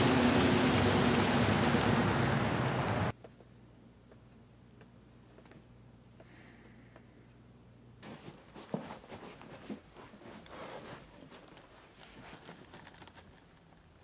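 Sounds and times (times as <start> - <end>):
footsteps: 8.0 - 11.6.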